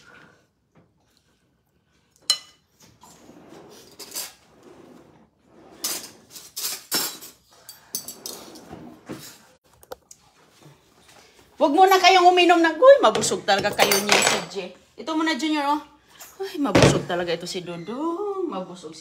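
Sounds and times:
cutlery rattling in a drawer: 0:05.7 - 0:08.7, 0:13.6 - 0:14.6.

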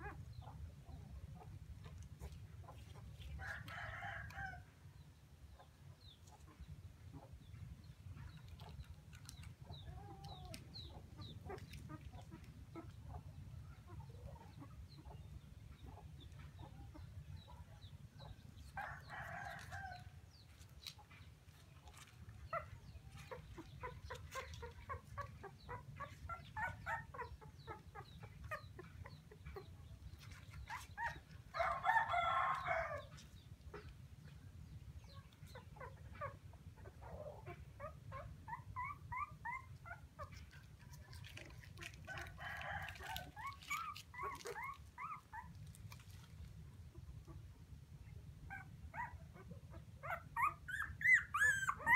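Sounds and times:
chickens clucking: 0:05.5 - 0:51.9.

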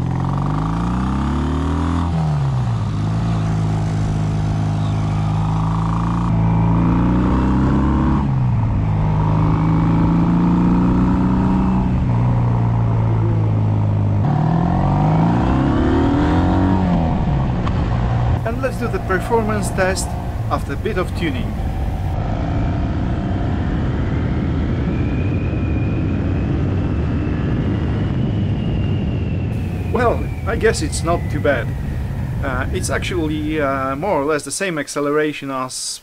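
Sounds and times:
motorcycle engine accelerating: 0:00.0 - 0:25.4, 0:29.5 - 0:34.3
wind noise on microphone: 0:16.8 - 0:34.2.

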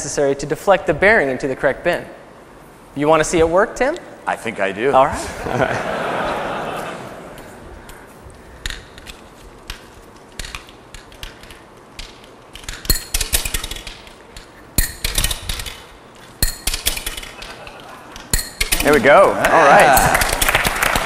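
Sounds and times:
sharp metallic clicks: 0:08.6 - 0:19.2
ball bearings clinking and rattling: 0:08.6 - 0:20.8.

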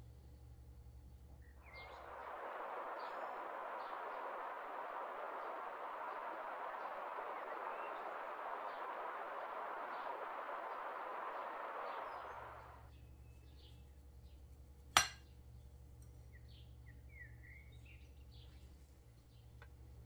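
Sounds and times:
steady low hum: 0:00.0 - 0:20.0
faint bird chirps: 0:00.1 - 0:14.4, 0:15.5 - 0:19.6
rushing river water: 0:01.9 - 0:12.7
utensil clinking on ceramic bowl: 0:15.0 - 0:15.2.

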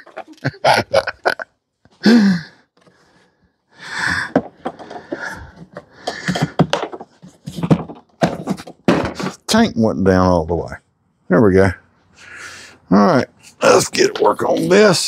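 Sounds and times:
plastic parts clicking and rattling: 0:04.3 - 0:09.4.

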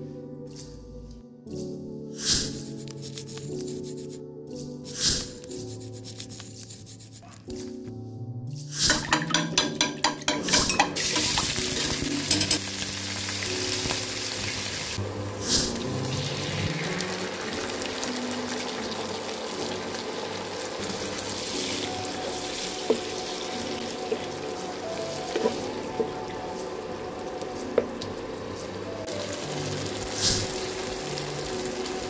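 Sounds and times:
onions sizzling in hot oil: 0:10.7 - 0:27.4, 0:28.0 - 0:32.0.

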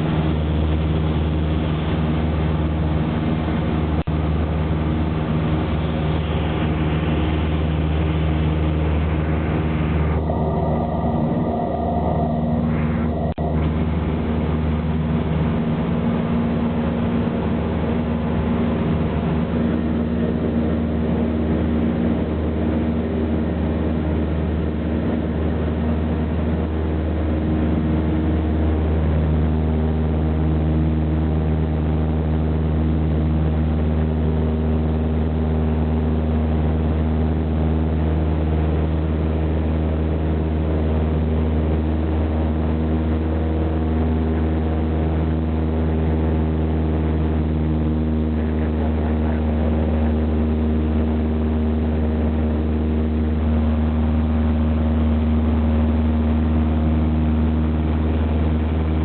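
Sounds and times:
propeller plane engine droning: 0:00.0 - 0:59.0.

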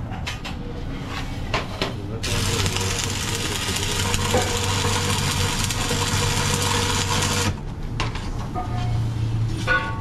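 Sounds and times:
welding arc crackling and hissing: 0:02.2 - 0:07.6
low machine hum: 0:02.2 - 0:07.8.

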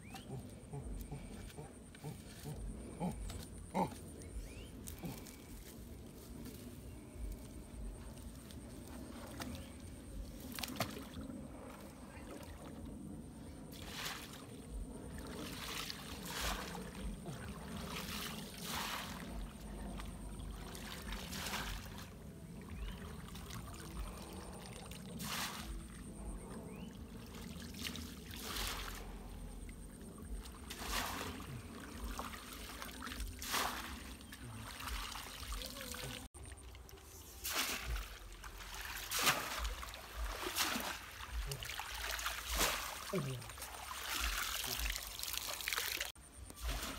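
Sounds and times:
water splashing while wading: 0:08.8 - 0:12.8, 0:13.7 - 0:46.9.

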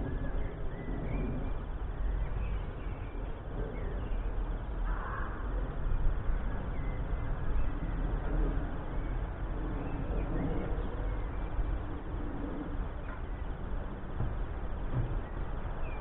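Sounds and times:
small birds chirping: 0:00.0 - 0:12.0
wind rumble on microphone: 0:00.0 - 0:16.0.

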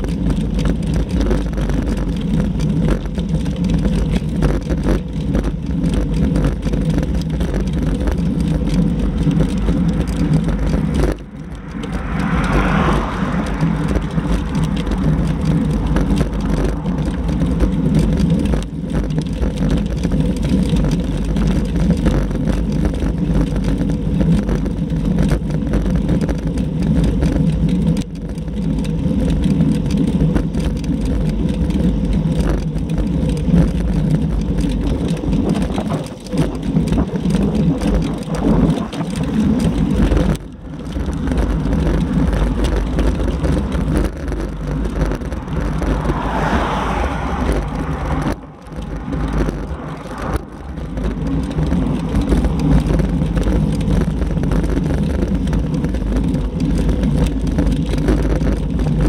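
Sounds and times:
bicycle tyre noise on road: 0:00.0 - 0:59.0
wind on microphone: 0:06.4 - 0:20.1, 0:34.3 - 0:59.0.

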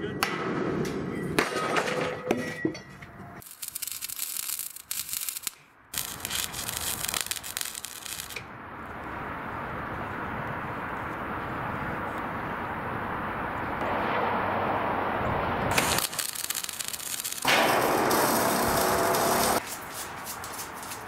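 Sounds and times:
welder arc crackling: 0:03.4 - 0:08.5, 0:15.7 - 0:21.0.

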